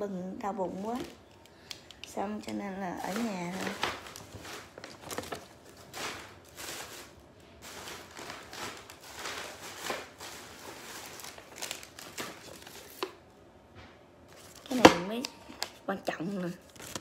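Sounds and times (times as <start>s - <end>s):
paper and tissue rustling: 0.5s - 13.2s, 14.3s - 17.0s.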